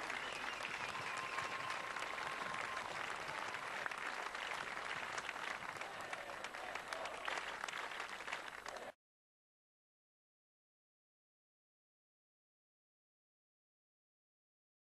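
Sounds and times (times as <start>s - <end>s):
large crowd applauding: 0.0s - 9.0s.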